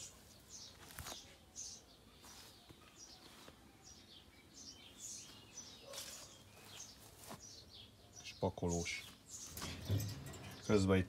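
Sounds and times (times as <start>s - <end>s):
faint songbirds chirping: 0.0s - 11.0s.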